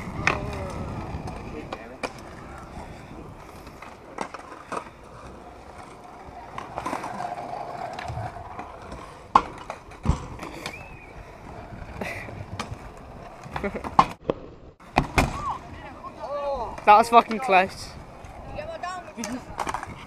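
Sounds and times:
skateboard wheels rolling on concrete: 0.0s - 20.0s
skateboard deck clacking on ground: 19.0s - 20.0s.

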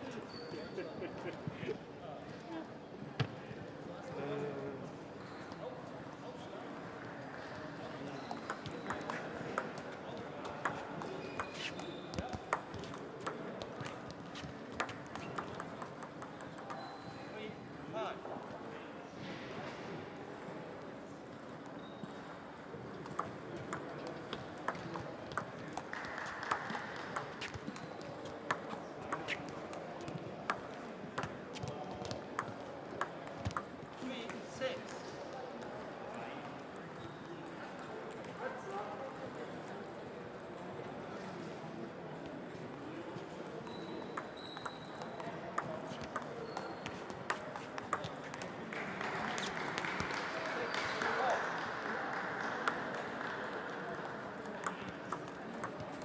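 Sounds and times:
murmur of sports hall: 0.0s - 56.0s
table tennis balls clicking: 8.3s - 17.0s, 23.0s - 34.5s, 44.1s - 48.6s, 54.4s - 56.0s.

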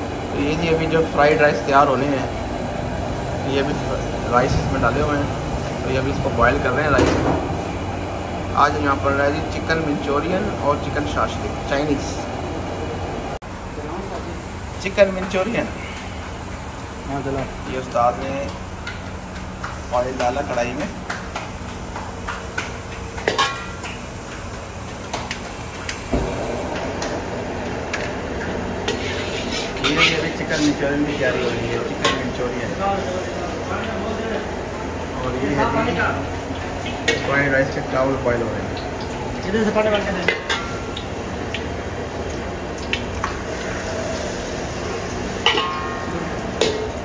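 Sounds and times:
gas burner rushing: 0.0s - 13.4s, 14.1s - 47.0s
ladle clinking against wok: 45.4s - 47.0s.

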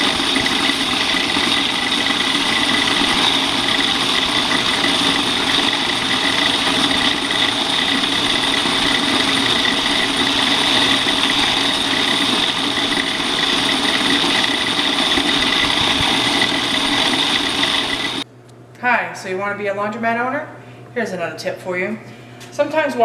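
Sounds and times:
high machine whine: 0.0s - 18.2s
laundry machines humming: 0.0s - 18.3s.

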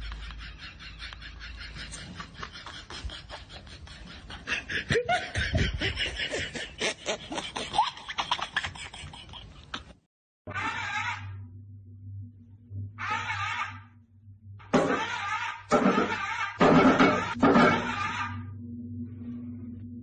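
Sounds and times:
choppy laughter: 0.0s - 10.1s, 14.8s - 18.4s.

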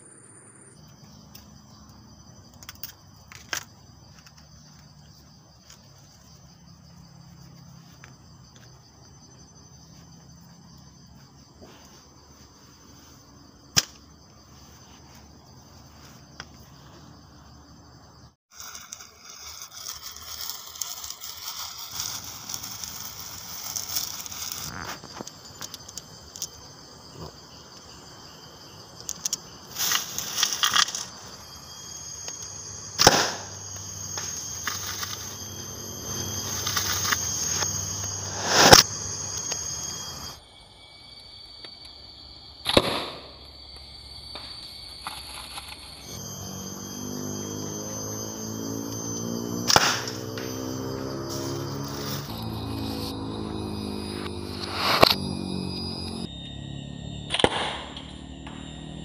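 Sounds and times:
crickets chirping: 0.0s - 59.0s
rustles: 18.5s - 26.6s.

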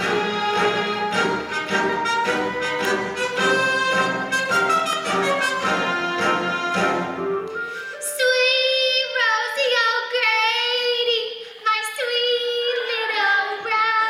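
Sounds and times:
woman singing with vibrato: 8.0s - 14.0s.

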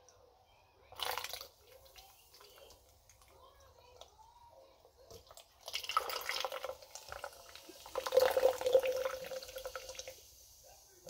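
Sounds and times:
soda pouring into plastic cup: 0.9s - 3.4s, 5.2s - 11.0s.

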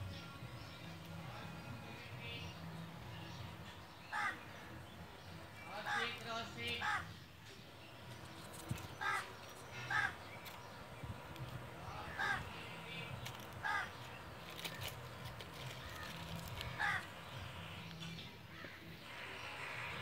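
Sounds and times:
crow cawing: 4.1s - 4.4s, 5.8s - 6.2s, 6.8s - 7.2s, 9.0s - 10.2s, 12.0s - 12.6s, 13.6s - 14.0s, 15.8s - 17.1s, 18.5s - 20.0s.

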